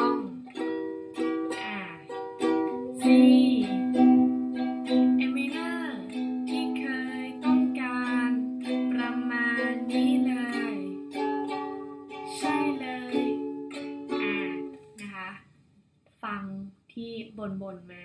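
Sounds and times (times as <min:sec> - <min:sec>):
woman singing: 0:00.0 - 0:00.4, 0:01.5 - 0:02.2, 0:02.8 - 0:04.2, 0:04.9 - 0:15.3
ukulele strumming: 0:00.0 - 0:15.1.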